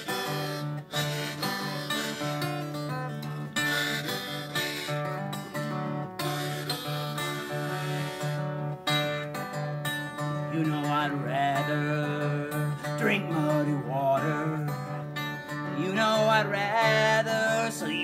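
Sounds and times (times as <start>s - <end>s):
acoustic guitar blues strumming: 0.0s - 18.0s
sliding guitar melody notes: 0.0s - 18.0s.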